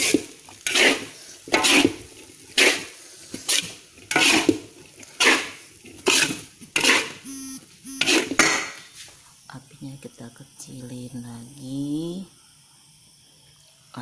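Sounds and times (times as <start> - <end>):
spatula scraping a wok: 0.0 - 7.2, 7.9 - 9.1
steady hum: 7.2 - 14.0.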